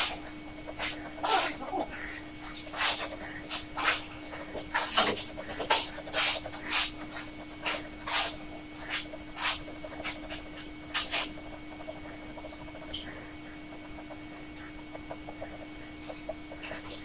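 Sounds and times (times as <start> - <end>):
pen nib scratching paper: 0.0 - 17.0.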